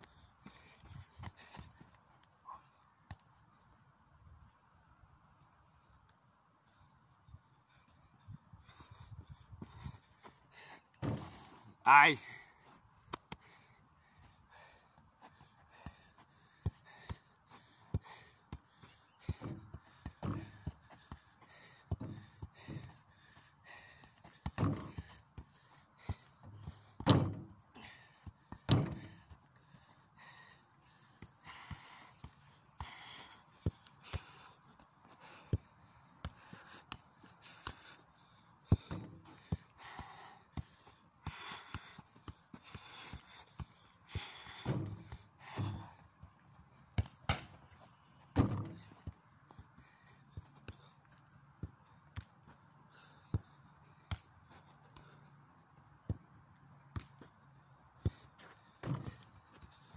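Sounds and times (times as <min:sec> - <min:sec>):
football kicks thuds: 0:11.0 - 0:11.5, 0:19.2 - 0:23.0, 0:24.2 - 0:27.6, 0:28.3 - 0:29.3, 0:38.7 - 0:40.7, 0:41.3 - 0:46.3, 0:46.9 - 0:49.6, 0:58.0 - 0:59.9.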